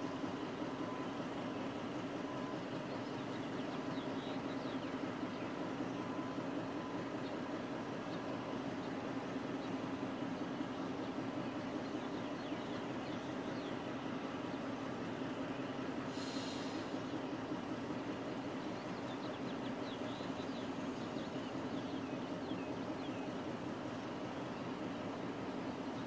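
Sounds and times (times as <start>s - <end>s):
faint bird chirps: 0.0s - 9.0s, 18.2s - 24.8s
diesel locomotives running: 0.0s - 26.0s
air hiss: 16.1s - 17.2s.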